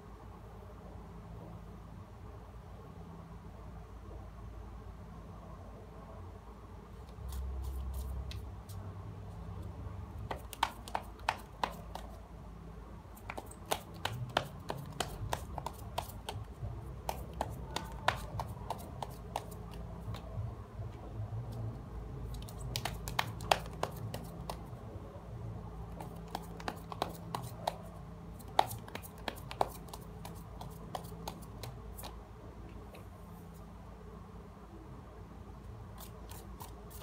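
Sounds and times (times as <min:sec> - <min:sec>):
low steady hum: 0:00.0 - 0:37.0
cards being shuffled: 0:10.2 - 0:12.2, 0:13.2 - 0:20.3, 0:22.3 - 0:24.7, 0:25.9 - 0:32.2.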